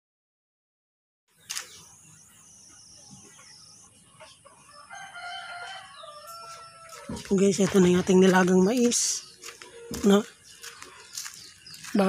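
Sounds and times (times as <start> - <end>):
faint outdoor background noise: 1.3 - 12.0
rooster crowing: 4.6 - 7.2.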